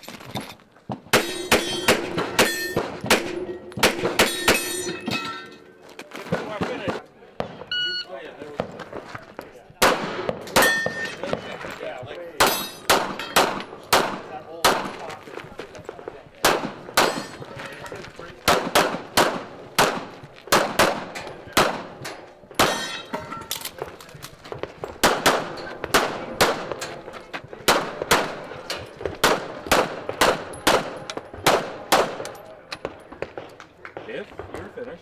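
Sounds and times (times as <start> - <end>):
pistol shots: 1.0 - 5.0, 9.8 - 11.5, 12.4 - 15.1, 16.4 - 17.5, 18.4 - 34.5.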